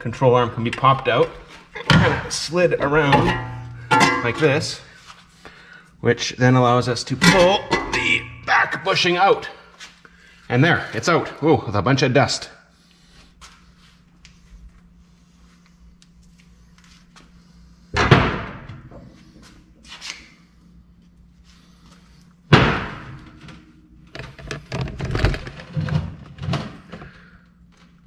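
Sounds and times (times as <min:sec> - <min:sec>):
tools knocking and clattering: 0:01.8 - 0:04.6, 0:07.2 - 0:08.5
metal clanks on steel deck: 0:02.9 - 0:04.6, 0:07.2 - 0:08.6.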